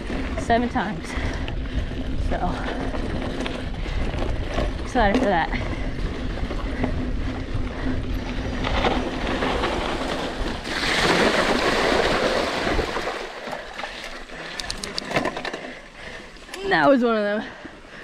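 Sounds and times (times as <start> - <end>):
bike rolling over dirt trail: 0.0 - 17.0
bike tyres splashing through water: 9.0 - 14.5.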